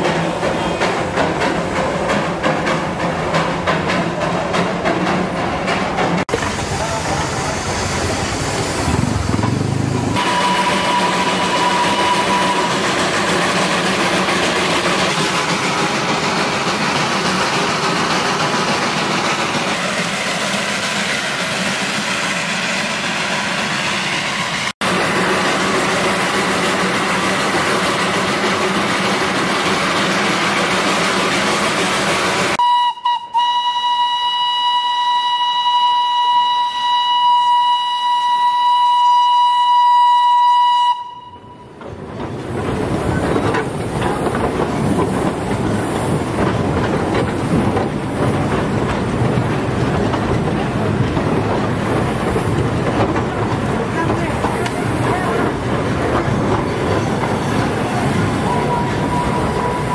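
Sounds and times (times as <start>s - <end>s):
steam locomotive running: 0.0s - 59.9s
steam whistle blasts: 10.2s - 13.0s, 32.6s - 41.8s.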